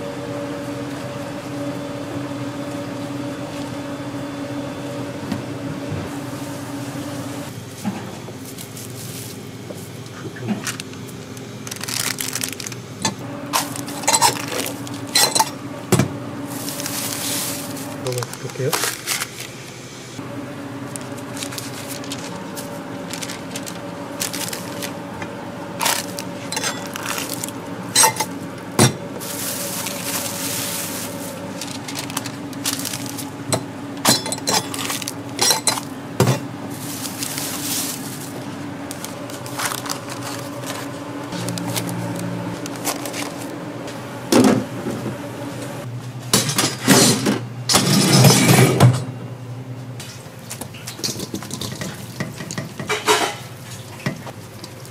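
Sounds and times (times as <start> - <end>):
machine hum: 0.0 - 50.4
metal and glassware clinking: 26.5 - 26.9, 28.0 - 28.3, 34.1 - 35.8.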